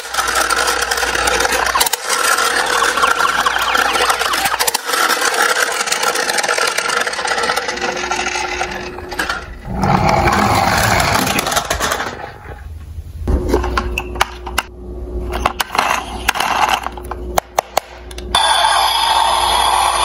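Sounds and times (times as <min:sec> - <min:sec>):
plastic toy cars rattling: 0:00.0 - 0:12.4, 0:15.6 - 0:17.1.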